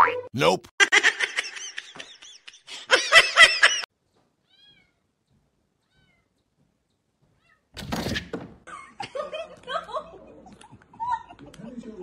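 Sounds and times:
cat meowing: 4.4 - 5.1, 5.8 - 6.4, 7.3 - 7.7.

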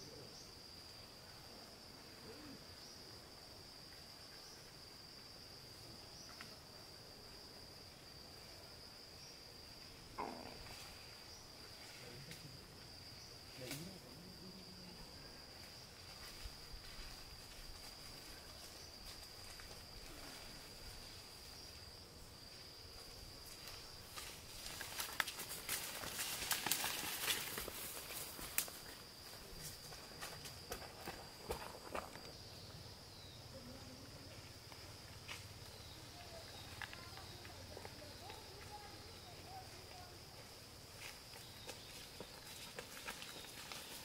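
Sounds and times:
footsteps on dirt path: 23.8 - 32.3, 36.4 - 44.0.

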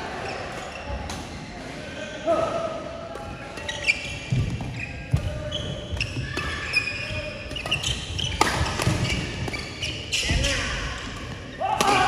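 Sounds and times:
rackets hitting shuttlecock: 3.1 - 12.0
sneakers squeaking on court: 3.5 - 11.6.

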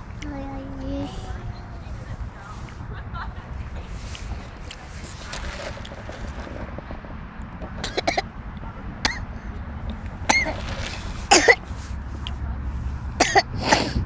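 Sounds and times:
toddler coughing: 7.8 - 8.3, 9.0 - 9.3, 10.3 - 10.6, 11.3 - 11.6, 13.2 - 14.0.

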